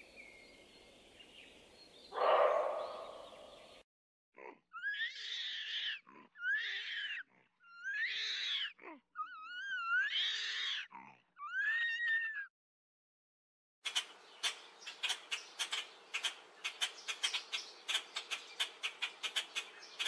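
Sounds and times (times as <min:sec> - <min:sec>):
animal screaming: 0:02.2 - 0:03.2, 0:04.8 - 0:12.5.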